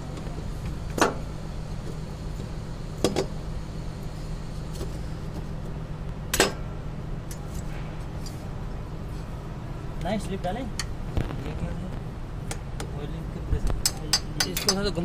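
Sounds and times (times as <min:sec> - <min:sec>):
steady low hum: 0:00.0 - 0:15.0
sharp metallic knocks: 0:13.8 - 0:14.9.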